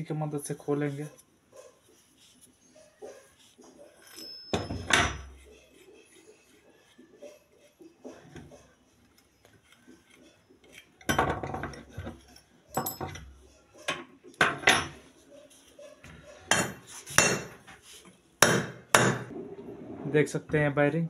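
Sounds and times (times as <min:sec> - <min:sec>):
metal parts handled on workbench: 0:11.0 - 0:15.0.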